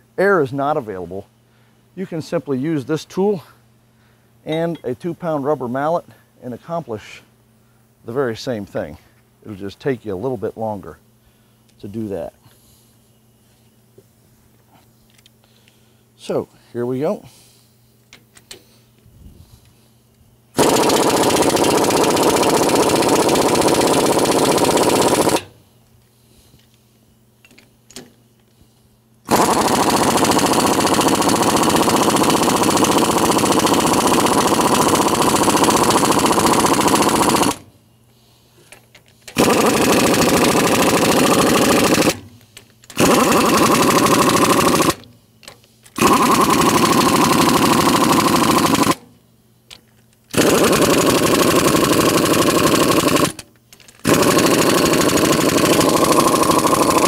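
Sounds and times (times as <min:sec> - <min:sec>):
pneumatic impact wrench hammering: 0:20.6 - 0:25.6, 0:29.3 - 0:37.7, 0:38.6 - 0:49.1, 0:49.7 - 0:57.0.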